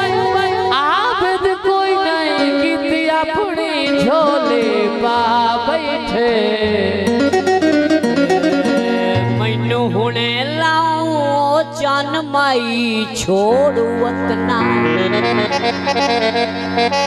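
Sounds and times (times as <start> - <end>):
folk band playing instrumental: 14.9 - 17.0.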